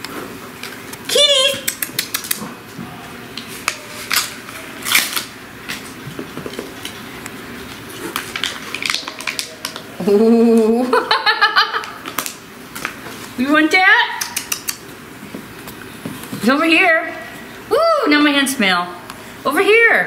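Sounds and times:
foil packaging crinkling: 8.0 - 10.0.

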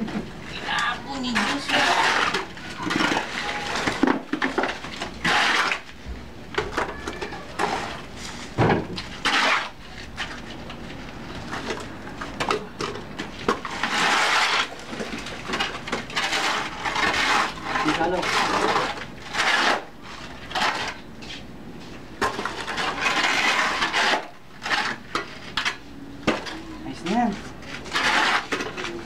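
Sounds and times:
shovel scraping wet mortar: 0.7 - 5.9, 9.1 - 10.3, 13.4 - 21.0, 22.2 - 25.8, 27.7 - 29.0.

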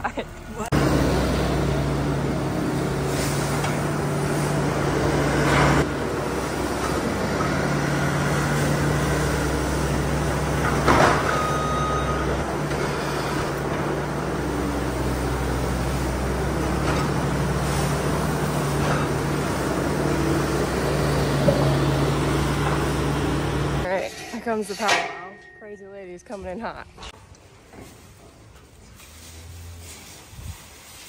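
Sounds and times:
diesel engine running under load: 0.0 - 24.0
sharp metal clank: 23.9 - 25.8.

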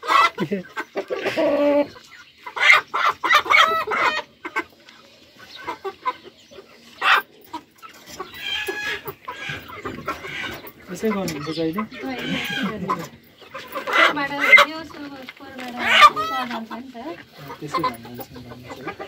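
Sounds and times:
chickens clucking and squawking: 0.0 - 19.0.

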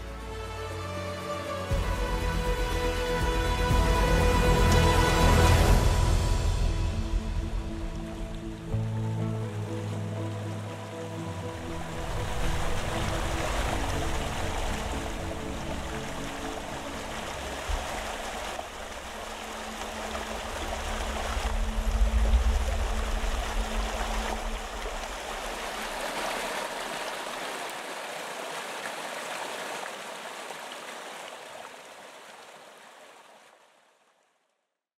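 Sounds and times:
waterfall rushing and splashing: 0.0 - 33.6
low rumble: 1.8 - 9.8, 11.4 - 26.1.

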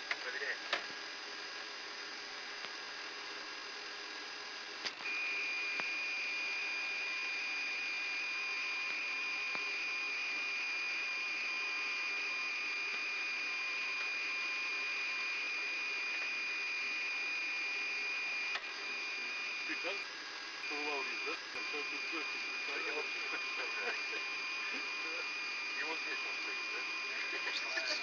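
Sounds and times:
recorder hiss: 4.8 - 28.0
high-pitched electronic tone: 21.6 - 28.0.

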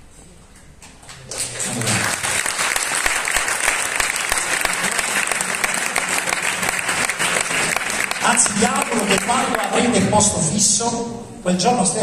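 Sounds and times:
audience applause: 1.1 - 10.0.

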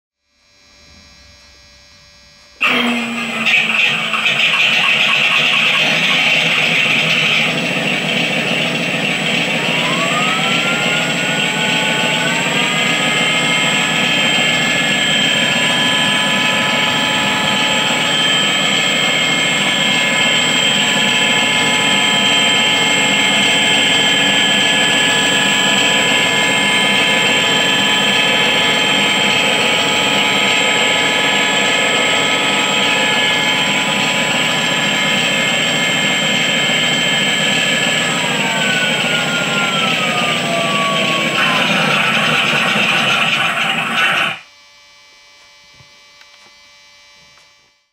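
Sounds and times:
electric motor whine: 0.4 - 47.8
simulated aircraft engine rumble: 3.2 - 44.0.

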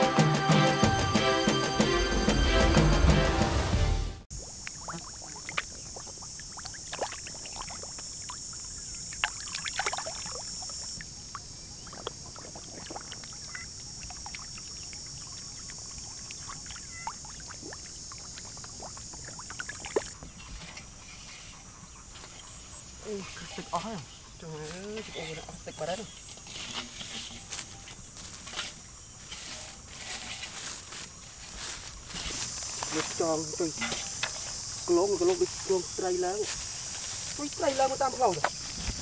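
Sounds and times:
fish splashing in water: 4.4 - 20.4.

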